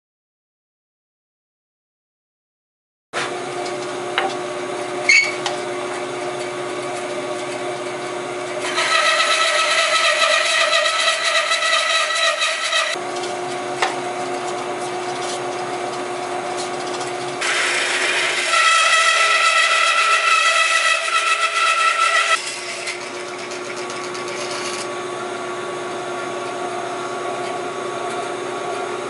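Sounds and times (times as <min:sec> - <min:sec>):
bandsaw humming: 0:03.2 - 0:25.0
bandsaw blade cutting wood: 0:08.6 - 0:13.0, 0:17.4 - 0:24.9.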